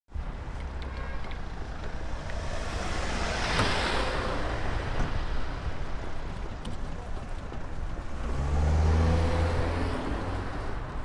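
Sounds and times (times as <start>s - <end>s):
low street rumble: 0.1s - 11.0s
vehicle passing by: 1.6s - 5.6s, 8.1s - 10.9s.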